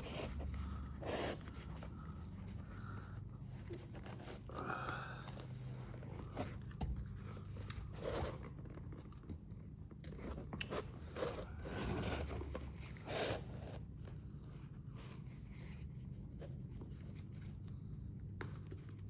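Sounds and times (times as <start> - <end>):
tool bag rustling and scraping: 0.0 - 2.4, 11.0 - 13.8.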